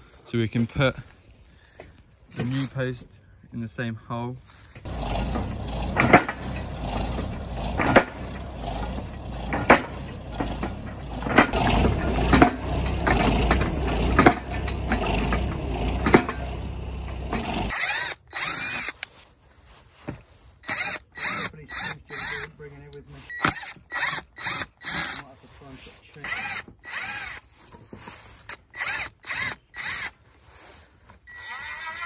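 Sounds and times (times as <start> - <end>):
machine engine rumble: 4.8 - 17.8
post driver knocking: 4.9 - 17.7
cordless drill whirring: 17.7 - 19.1, 20.6 - 22.6, 23.2 - 25.3, 26.2 - 27.7, 28.4 - 30.2, 31.2 - 32.0.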